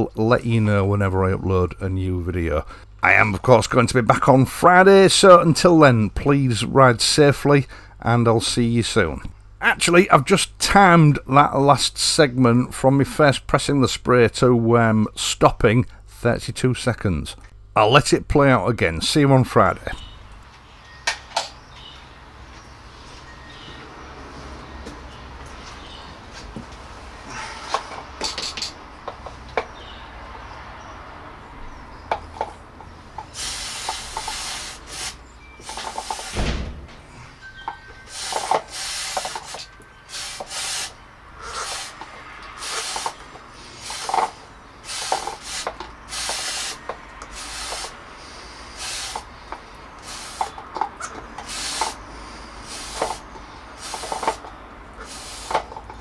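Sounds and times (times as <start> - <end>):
aerosol spray hissing bursts: 33.3 - 36.5, 38.1 - 42.0, 42.6 - 44.2, 44.8 - 49.3, 50.0 - 50.6, 51.4 - 52.0, 52.6 - 55.7.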